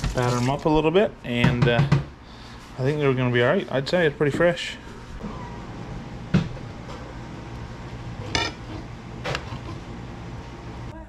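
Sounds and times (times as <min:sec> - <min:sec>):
knife clinking on ceramic plate: 0:08.2 - 0:09.5.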